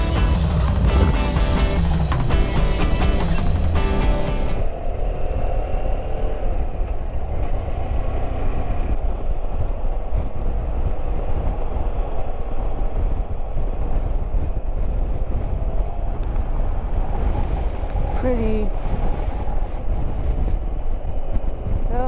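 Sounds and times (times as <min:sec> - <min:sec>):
motorcycle engine drone: 0:00.0 - 0:22.0
wind noise on microphone: 0:00.0 - 0:22.0.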